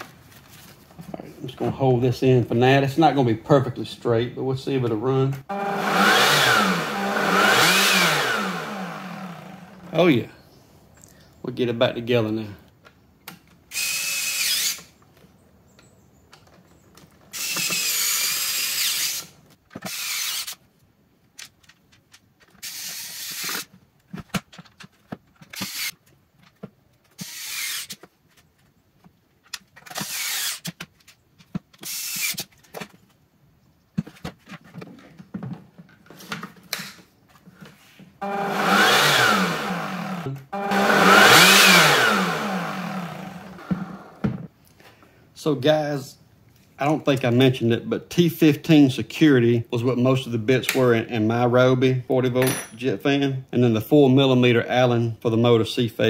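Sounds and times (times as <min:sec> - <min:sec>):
cordless screwdriver whirring: 0:05.5 - 0:09.9, 0:13.7 - 0:14.9, 0:17.3 - 0:20.6, 0:22.6 - 0:23.7, 0:25.5 - 0:26.0, 0:27.2 - 0:28.0, 0:29.9 - 0:30.8, 0:31.8 - 0:32.5, 0:38.2 - 0:44.2.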